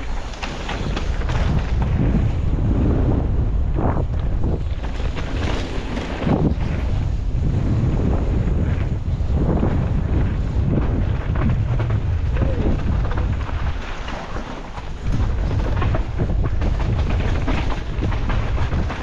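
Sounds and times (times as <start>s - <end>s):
bike rattling over rough ground: 0.0s - 19.0s
wind buffeting microphone: 0.0s - 19.0s.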